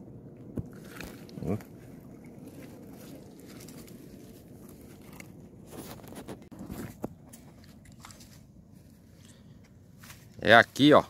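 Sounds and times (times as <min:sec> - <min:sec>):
footsteps on leaves and stones: 0:02.4 - 0:11.0.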